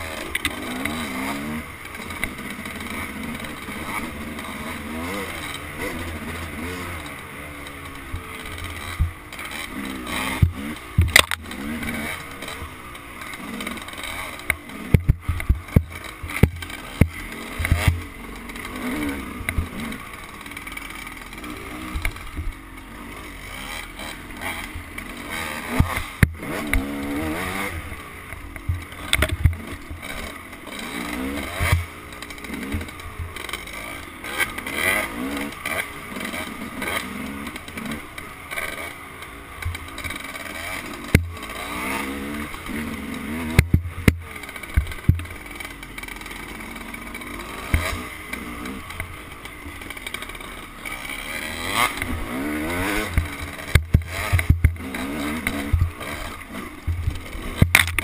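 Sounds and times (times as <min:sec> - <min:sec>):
dirt bike engine revving: 0:00.0 - 0:58.0
bike knocks and rattles: 0:04.9 - 0:12.1, 0:13.2 - 0:20.8, 0:25.7 - 0:35.8, 0:39.6 - 0:45.7, 0:51.6 - 0:58.0.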